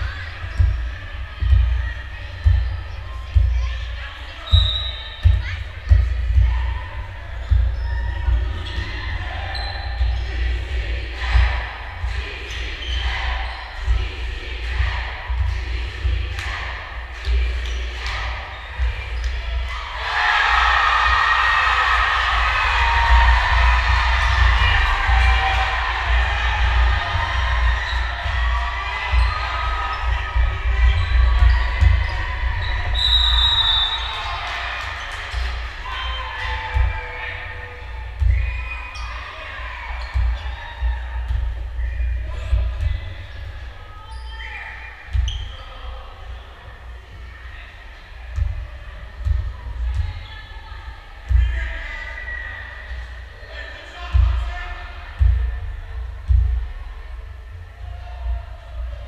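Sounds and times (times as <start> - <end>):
basketball bouncing on gym floor: 0.0 - 10.2, 22.2 - 33.0, 39.9 - 44.2, 48.3 - 50.3, 55.2 - 56.7
crowd voices: 0.0 - 59.0.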